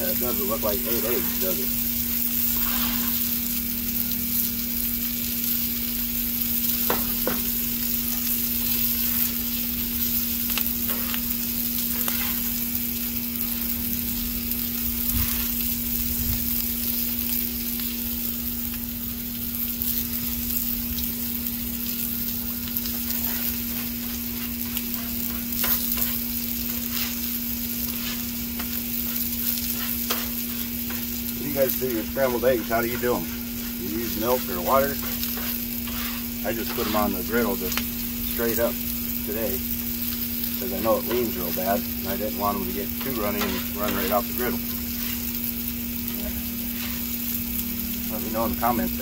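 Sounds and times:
eggs and sausage sizzling on griddle: 0:00.0 - 0:49.0
metal spatula scraping griddle: 0:02.5 - 0:03.3, 0:10.8 - 0:12.6, 0:15.0 - 0:15.6, 0:22.8 - 0:37.7, 0:42.6 - 0:45.3, 0:46.3 - 0:47.2.

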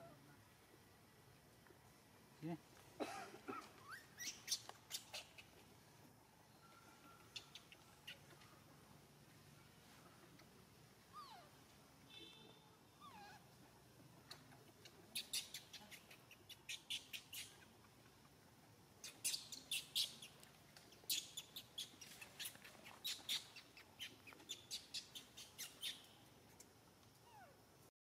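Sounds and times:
birds chirping: 0:06.3 - 0:08.7, 0:19.0 - 0:26.3.

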